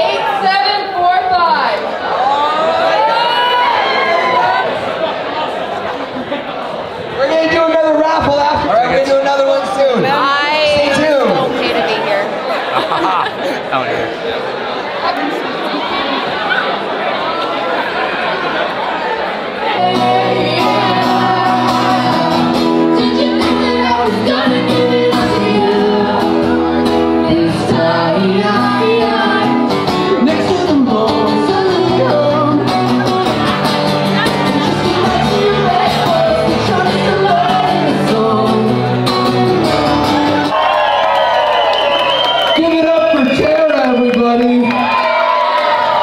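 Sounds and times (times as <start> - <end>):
person singing: 19.7 - 39.4
acoustic guitar: 19.7 - 40.6
drums: 19.8 - 40.7.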